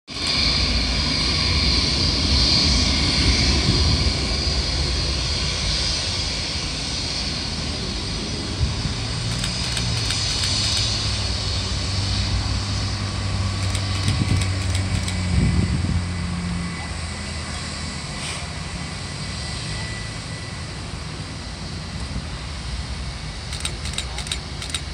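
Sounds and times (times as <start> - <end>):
distant jet engines: 0.1 - 24.9.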